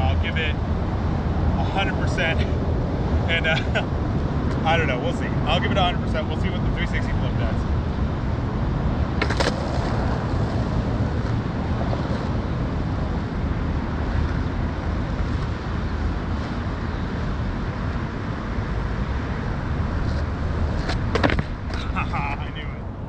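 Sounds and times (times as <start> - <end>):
wind rumble on microphone: 0.0 - 23.0
skateboard clacking on asphalt: 9.1 - 12.4, 20.0 - 21.8.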